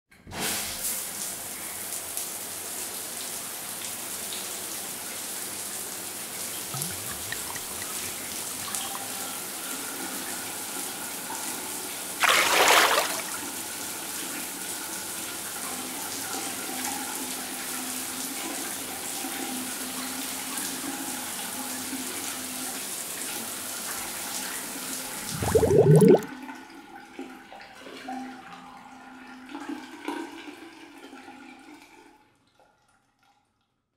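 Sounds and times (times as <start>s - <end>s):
rushing water: 6.7s - 9.3s, 12.2s - 13.5s, 25.2s - 26.3s
water splash: 6.8s - 8.7s, 12.2s - 13.5s, 25.2s - 26.3s.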